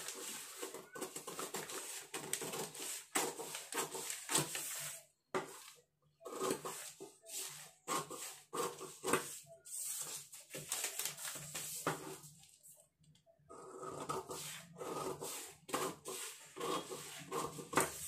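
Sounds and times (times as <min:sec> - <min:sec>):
scissors snipping paper: 0:00.0 - 0:04.8
paper rustling on wooden table: 0:00.0 - 0:05.8, 0:09.2 - 0:12.6.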